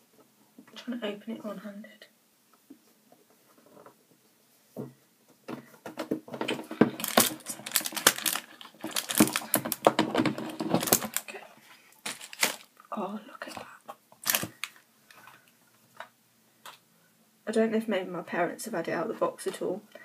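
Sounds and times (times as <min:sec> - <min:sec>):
cardboard box being handled: 0:06.4 - 0:11.3.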